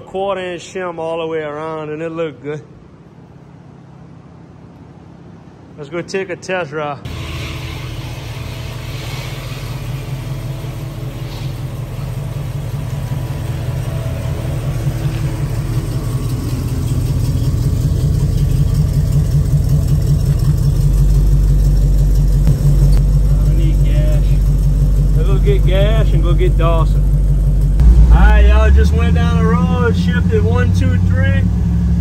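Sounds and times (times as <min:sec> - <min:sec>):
car engine running: 0:07.1 - 0:32.0
deep rumble: 0:07.1 - 0:32.0.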